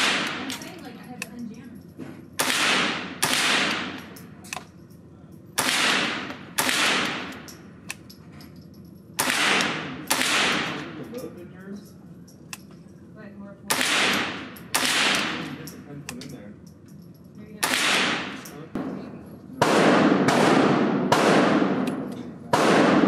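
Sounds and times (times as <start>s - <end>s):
rifle shots echoing indoors: 0.0s - 0.6s, 2.3s - 11.2s, 13.7s - 15.8s, 16.6s - 23.0s
faint distant gunshot cracks: 19.6s - 23.0s.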